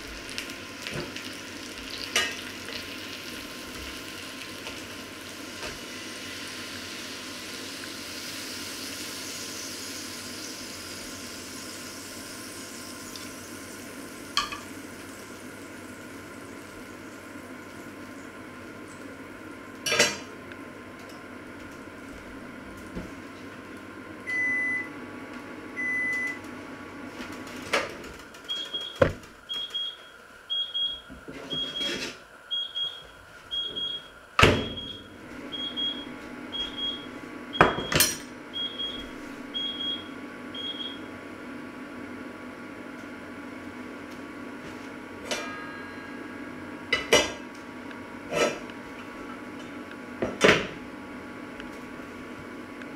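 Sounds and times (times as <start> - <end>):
kitchen appliance beeping: 24.2 - 25.0, 25.8 - 26.4, 28.4 - 41.2.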